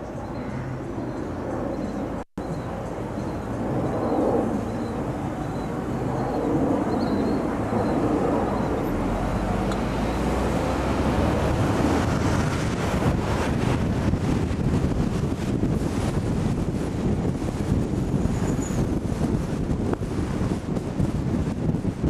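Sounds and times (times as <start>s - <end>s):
wind rushing over microphone: 0.0s - 22.0s
car road noise: 8.5s - 21.8s.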